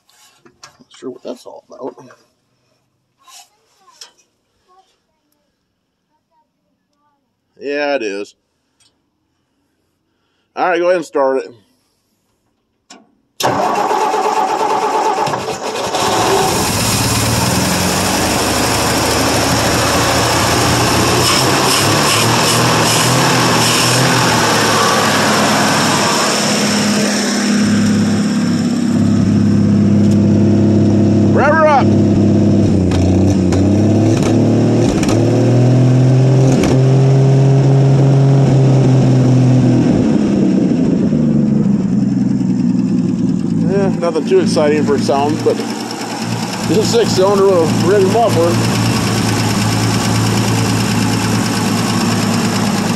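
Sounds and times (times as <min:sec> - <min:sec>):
engine starter cranking: 0:13.4 - 0:17.6, 0:43.8 - 0:52.9
engine firing and running: 0:13.4 - 0:52.9.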